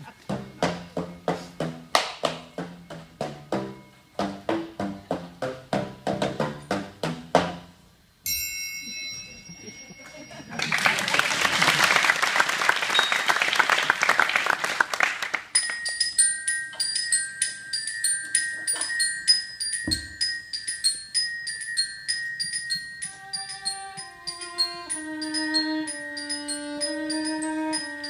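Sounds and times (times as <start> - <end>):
mallet percussion bell-like tune: 8.2 - 10.8, 13.0 - 13.3, 15.5 - 28.0
audience applause: 10.5 - 15.5
lower held melody: 15.6 - 28.0.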